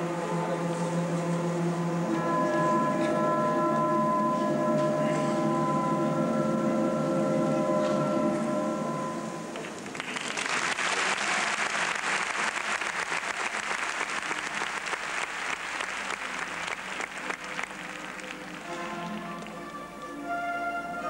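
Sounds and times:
audience applauding: 9.6s - 19.7s.

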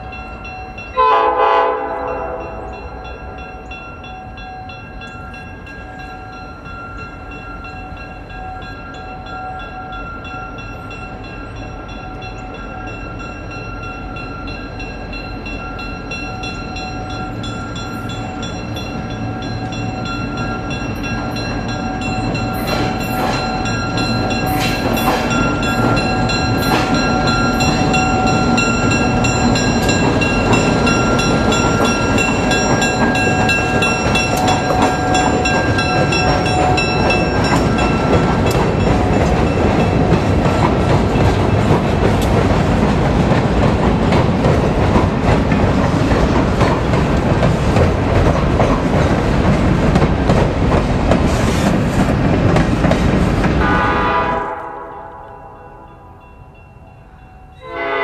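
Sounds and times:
train rumbling on trestle: 0.0s - 58.0s
wheels clicking over rail joints: 15.2s - 53.7s.

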